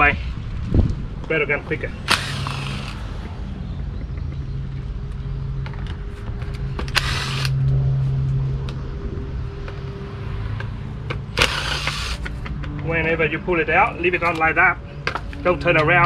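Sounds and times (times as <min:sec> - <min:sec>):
cordless drill running: 0:02.0 - 0:03.2, 0:06.9 - 0:07.6, 0:11.4 - 0:12.2.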